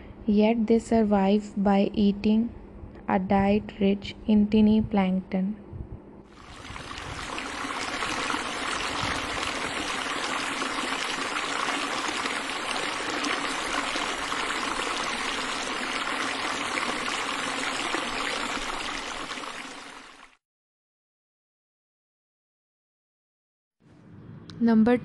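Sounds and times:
rushing trickling water: 6.3s - 20.4s.

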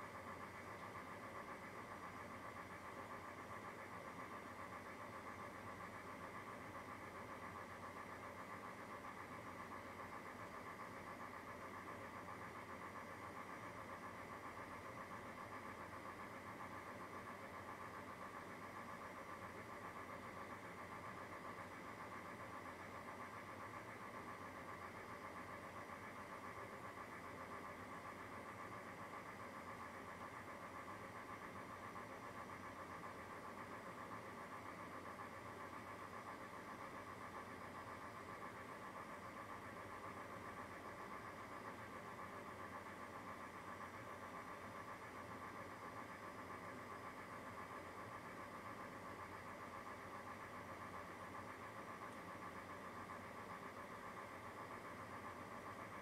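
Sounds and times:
mechanical hum with flutter: 0.0s - 56.0s.

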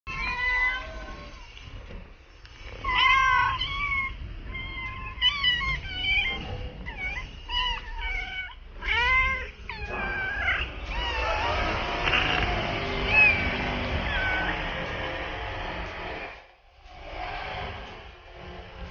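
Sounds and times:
cats meowing: 0.1s - 1.8s, 2.5s - 15.4s.

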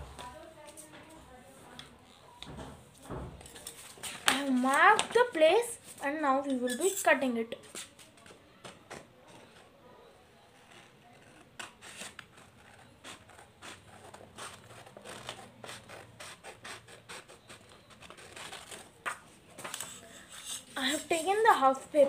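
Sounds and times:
scissors snipping paper: 10.6s - 21.3s.

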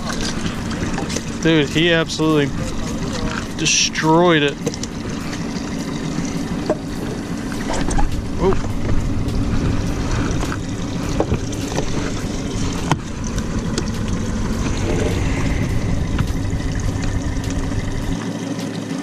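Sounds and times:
low rumble and hum: 0.0s - 19.0s.

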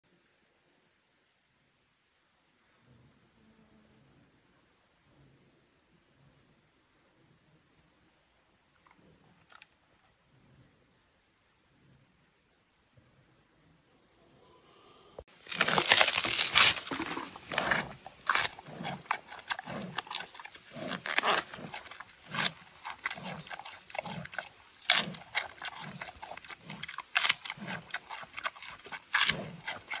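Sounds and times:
panda crunching bamboo: 15.3s - 30.0s
chewing: 15.4s - 30.0s.

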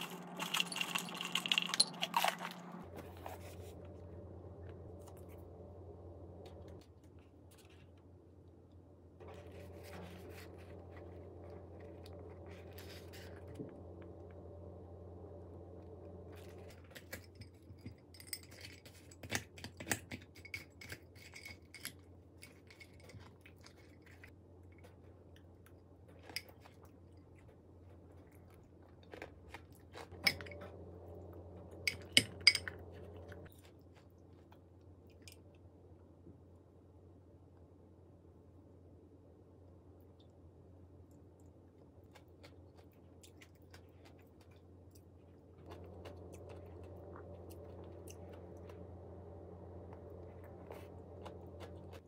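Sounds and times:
soft eating sounds: 15.8s - 36.8s, 39.7s - 52.0s.

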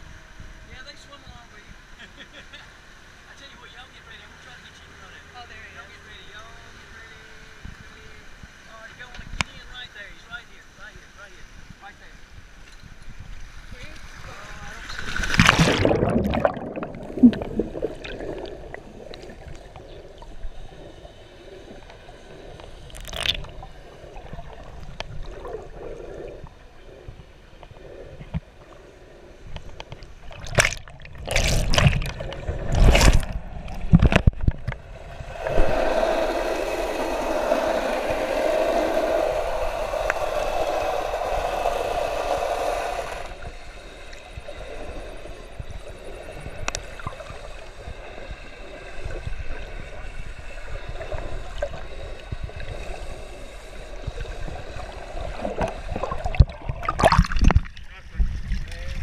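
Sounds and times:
steady hum: 13.2s - 58.2s
water splashing: 13.8s - 26.4s, 30.0s - 43.5s, 54.0s - 58.8s
water sloshing: 14.2s - 21.0s, 29.8s - 38.9s, 55.3s - 58.7s.

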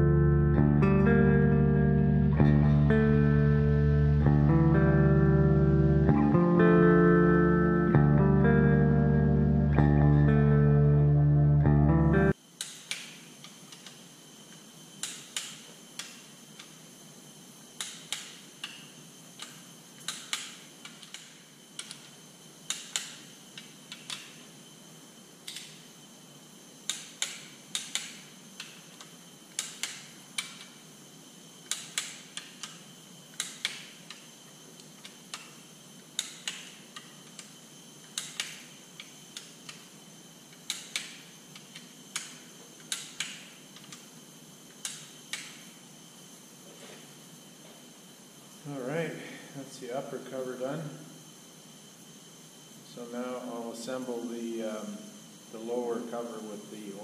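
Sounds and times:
hand ratchet clicking: 19.4s - 24.4s, 26.9s - 30.8s, 31.6s - 35.6s, 36.2s - 39.8s, 40.5s - 44.0s.

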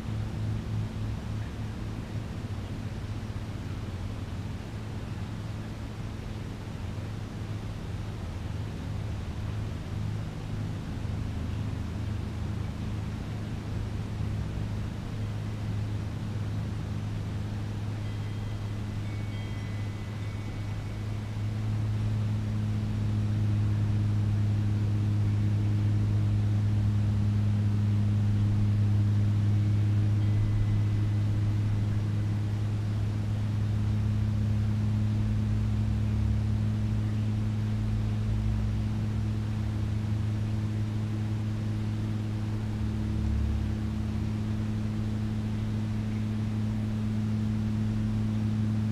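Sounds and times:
low machine hum: 0.0s - 48.9s
faint high chirps: 17.5s - 22.4s, 29.5s - 33.2s.

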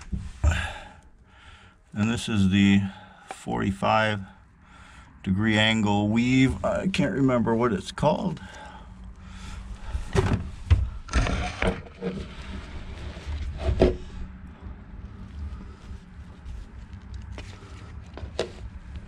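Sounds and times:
steady low hum: 0.0s - 19.0s
plastic cup scraping against hull: 11.1s - 14.2s.

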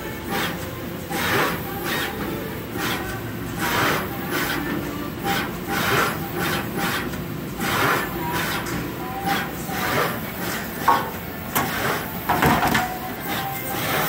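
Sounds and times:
machine whirring and hissing: 0.0s - 14.0s.

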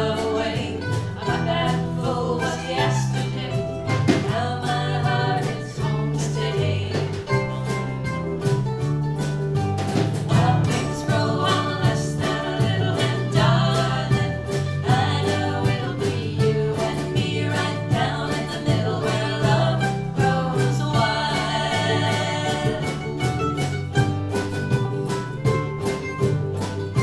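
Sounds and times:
women singing: 0.0s - 7.7s, 10.2s - 23.5s
strummed ukuleles and guitar: 0.0s - 27.0s.

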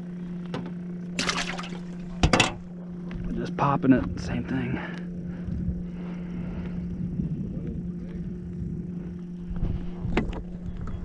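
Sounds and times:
boat motor hum: 0.0s - 11.0s
water rumble: 1.1s - 2.9s
wind on microphone: 5.4s - 11.0s.

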